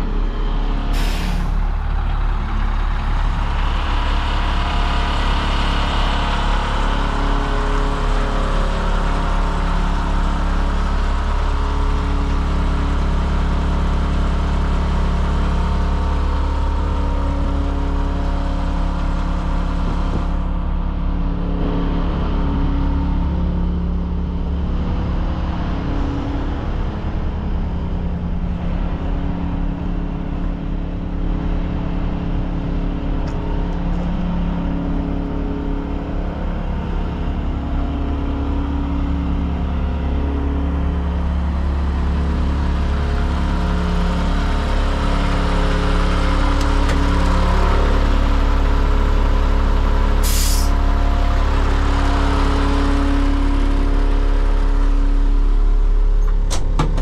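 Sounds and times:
truck engine idling: 0.0 - 57.0
engine hiss: 49.8 - 50.9.

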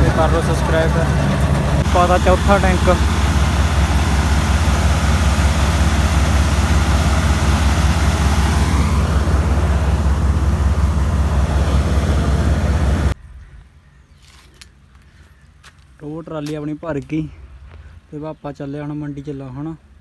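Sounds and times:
combine harvester engine drone: 0.0 - 13.2.

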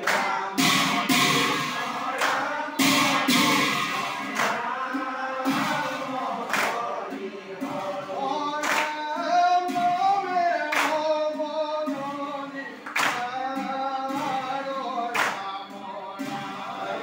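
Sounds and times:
sharp unison beat: 0.0 - 12.0
men chanting in unison: 0.0 - 17.0.

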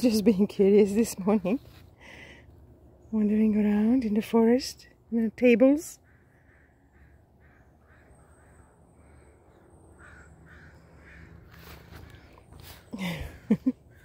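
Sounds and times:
crow cawing: 6.0 - 12.3.

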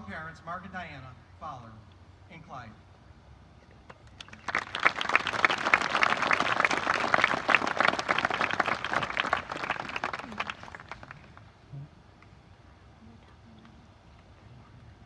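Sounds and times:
close hand claps: 3.9 - 11.4
crowd applauding: 4.1 - 11.4.

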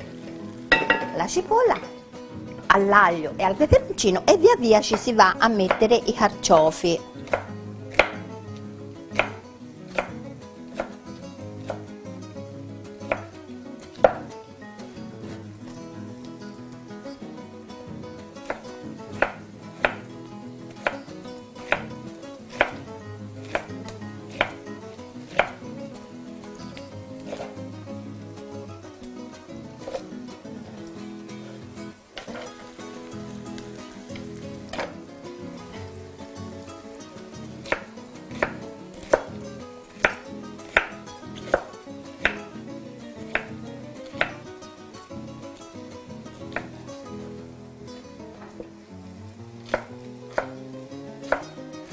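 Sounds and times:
quiet background music: 0.0 - 51.9
knife chopping on wooden board: 7.3 - 8.2, 9.1 - 10.2, 13.1 - 13.3, 14.0 - 14.3, 18.4 - 20.1, 21.6 - 22.8, 23.4 - 24.6, 25.3 - 25.6, 27.3 - 27.5, 37.7 - 39.3, 40.0 - 42.4, 43.3 - 44.4, 49.7 - 50.6, 51.3 - 51.5.

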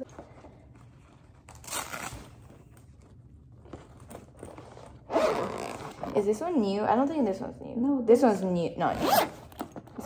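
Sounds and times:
zipper being pulled open: 4.4 - 6.3, 8.9 - 9.7.

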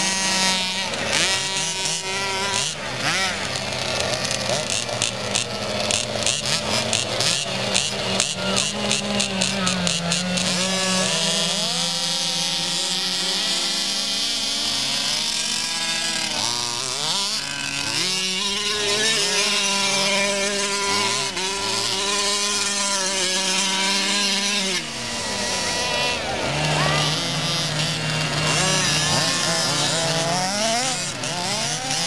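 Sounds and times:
small two-stroke engines revving: 0.0 - 32.0.

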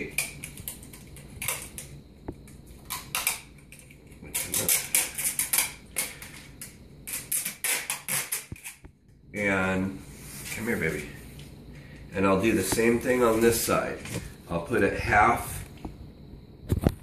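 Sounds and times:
adhesive tape pulled off roll: 7.0 - 8.8.

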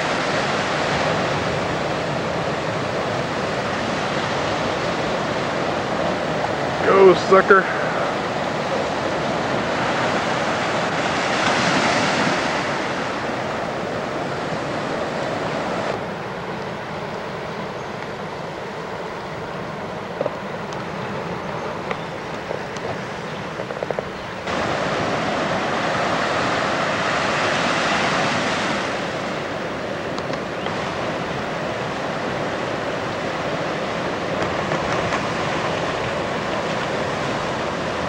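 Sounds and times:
wind on microphone: 0.0 - 17.6
ocean surf: 0.0 - 38.0.

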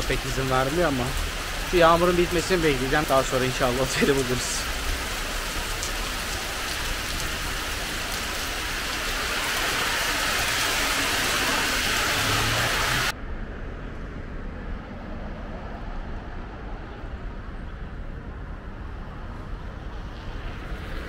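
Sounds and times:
heavy rain hissing on pavement: 0.0 - 13.1
quiet street background: 0.0 - 21.0.

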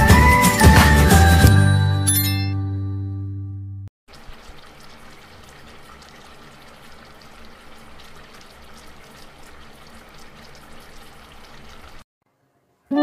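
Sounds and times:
stew simmering and sizzling in a pan: 4.1 - 12.1.

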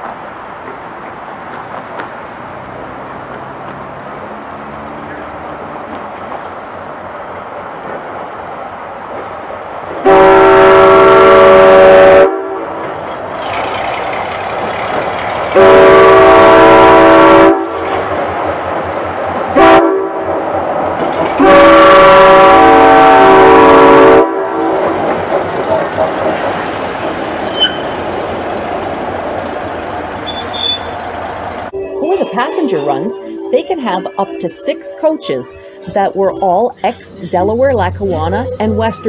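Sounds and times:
locomotive air horn blasts: 10.0 - 12.7, 15.6 - 17.8, 19.6 - 20.2, 21.4 - 24.6.

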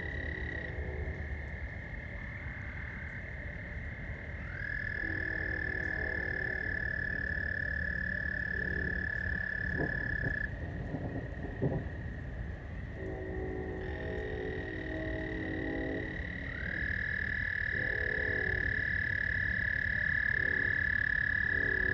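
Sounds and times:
faint low droning chord: 0.0 - 9.3, 12.2 - 19.0
long frog trill: 0.0 - 10.6, 13.0 - 21.9
frogs trilling chorus: 0.0 - 21.9.

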